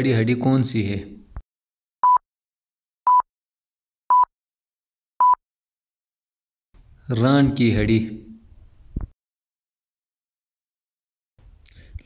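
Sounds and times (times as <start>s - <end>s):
short electronic beeps: 2.0s - 2.2s, 4.1s - 4.3s, 5.2s - 5.4s.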